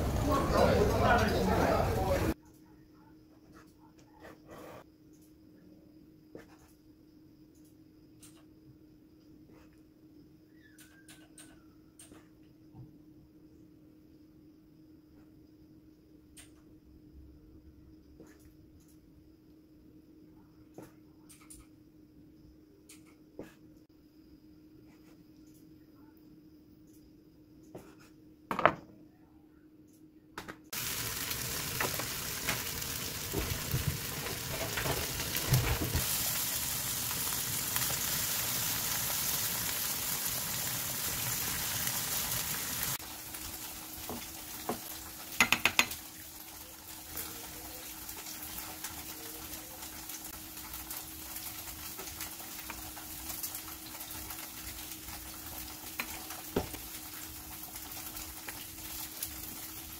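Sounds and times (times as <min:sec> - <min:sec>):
tofu sizzling in oil: 0:30.7 - 0:59.9
knocks of food into pan: 0:44.0 - 0:46.0.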